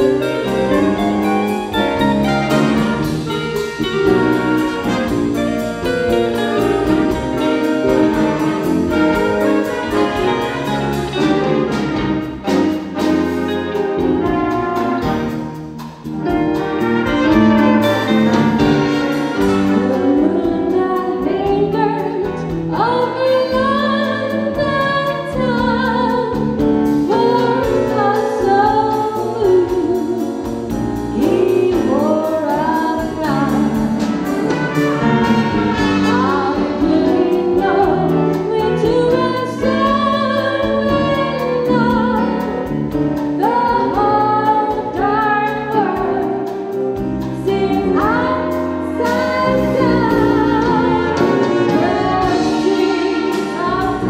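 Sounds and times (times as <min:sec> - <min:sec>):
live band with strings: 0:00.0 - 0:54.0
woman singing into a microphone: 0:19.8 - 0:26.5, 0:27.1 - 0:30.5, 0:31.1 - 0:34.0, 0:36.1 - 0:42.6, 0:43.4 - 0:46.4, 0:47.4 - 0:54.0.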